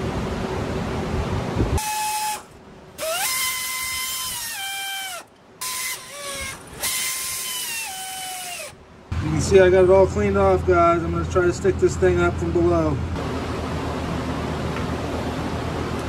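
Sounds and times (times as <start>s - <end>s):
air die grinder whining: 1.8s - 8.8s.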